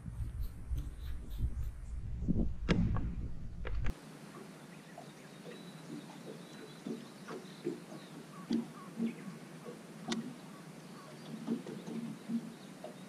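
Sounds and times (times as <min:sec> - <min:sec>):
water slapping boat hull: 0:05.9 - 0:13.0.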